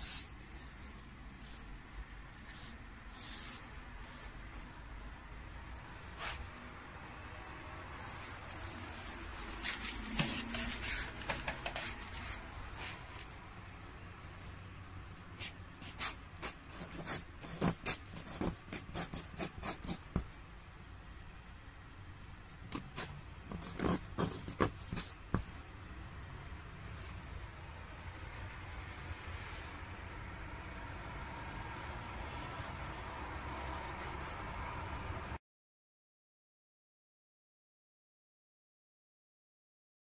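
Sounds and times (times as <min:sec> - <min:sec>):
quill scratching on paper: 0:15.4 - 0:20.3, 0:22.8 - 0:25.6.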